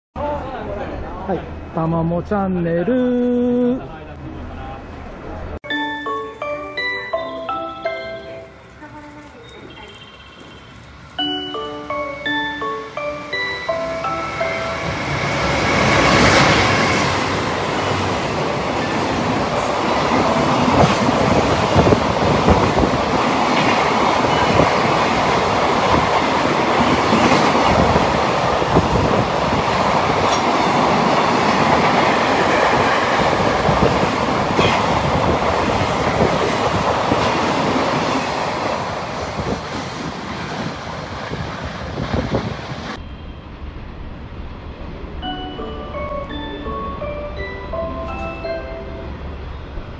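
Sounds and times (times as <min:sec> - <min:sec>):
freight train rumble: 0:03.2 - 0:49.9.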